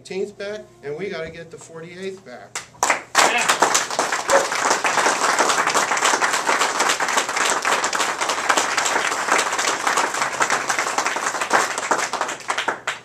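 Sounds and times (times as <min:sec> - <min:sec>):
audience applauding: 0:02.8 - 0:13.0.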